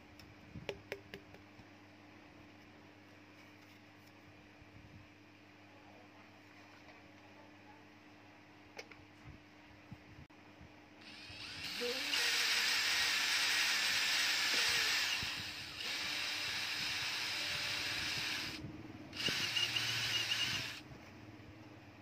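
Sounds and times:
power drill boring through plastic: 11.0 - 18.6, 19.2 - 20.8.

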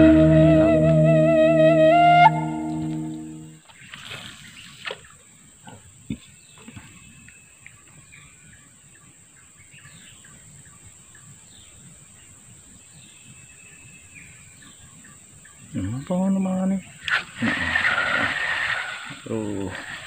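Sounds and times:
birds chirping: 12.9 - 20.0.

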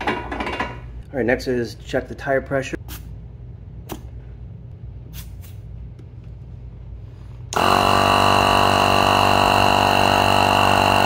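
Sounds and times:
air compressor buzzing: 7.4 - 11.0.

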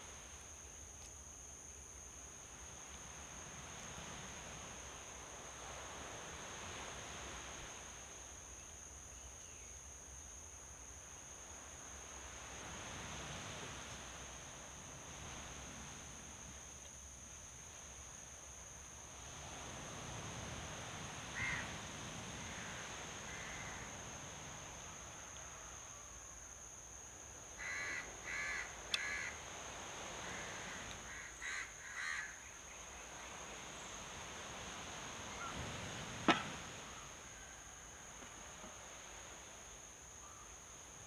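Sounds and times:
crows cawing: 21.4 - 21.6, 27.6 - 29.4, 30.3 - 32.4
sharp knock: 36.2 - 36.6.

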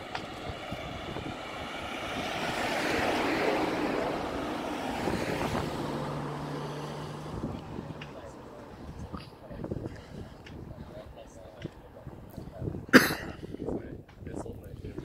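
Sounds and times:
vehicle driving past: 0.0 - 11.2
low engine hum: 0.0 - 12.9.

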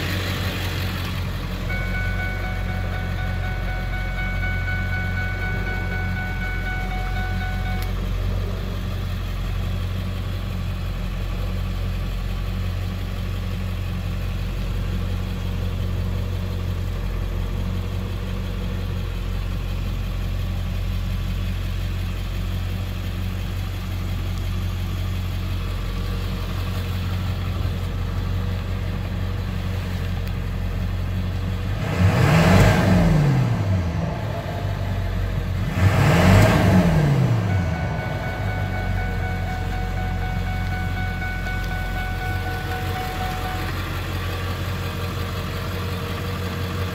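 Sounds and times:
diesel engine idling: 0.0 - 46.9
engine revving: 31.5 - 45.9.

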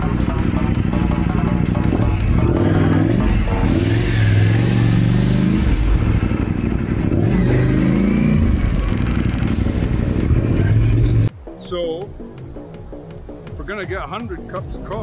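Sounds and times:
motorcycle engine revving: 0.0 - 11.3.

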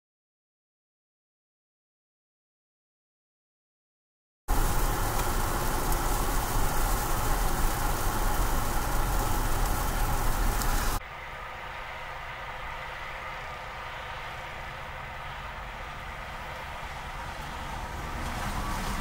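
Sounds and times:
road and wind noise: 4.5 - 19.0
truck engines idling: 4.5 - 19.0.

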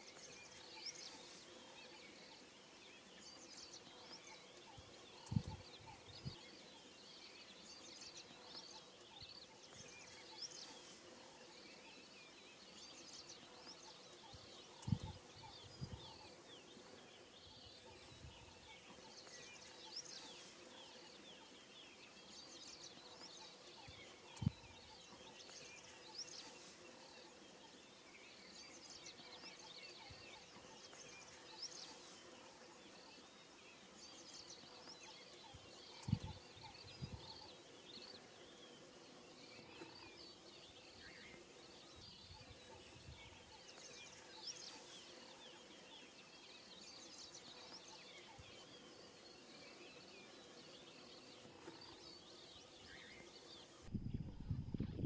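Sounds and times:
small birds chirping: 0.0 - 55.0
wind hitting microphone: 53.8 - 55.0.

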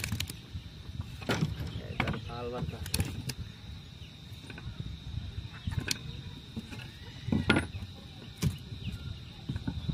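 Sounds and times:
wooden boards knocking and scraping: 1.1 - 3.2.

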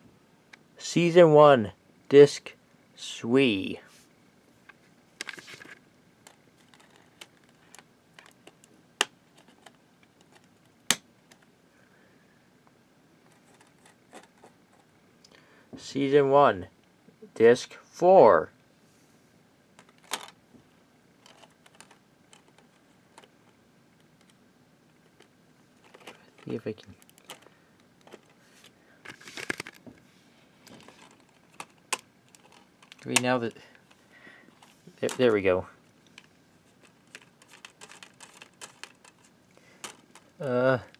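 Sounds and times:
plastic disc case clicking: 29.1 - 29.8, 37.0 - 40.2.

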